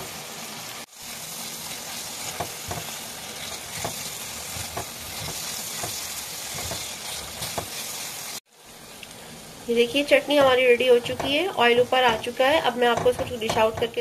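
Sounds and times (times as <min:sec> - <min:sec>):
chutney sizzling in oil: 0:00.0 - 0:14.0
spatula scraping pan: 0:01.1 - 0:08.0, 0:10.0 - 0:14.0.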